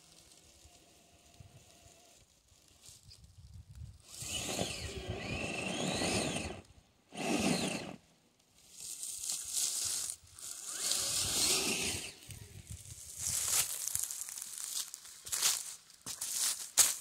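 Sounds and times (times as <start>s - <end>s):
tyres crunching through dry leaves: 0.0s - 6.6s, 8.5s - 17.0s
electric motor whining: 4.0s - 8.0s, 10.4s - 12.8s.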